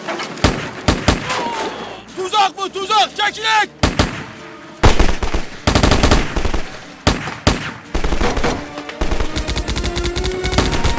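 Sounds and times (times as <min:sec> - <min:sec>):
automatic gunfire bursts: 0:04.8 - 0:10.9.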